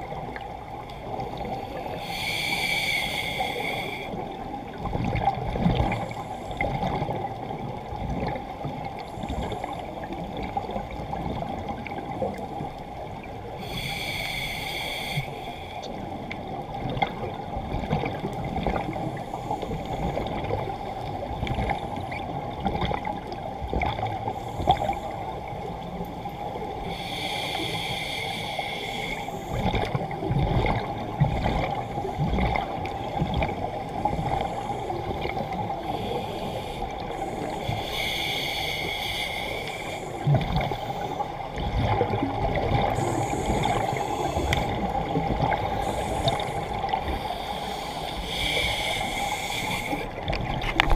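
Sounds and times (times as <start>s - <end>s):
underwater low hum: 0.0s - 50.9s
exhaled scuba bubbles: 26.2s - 50.9s.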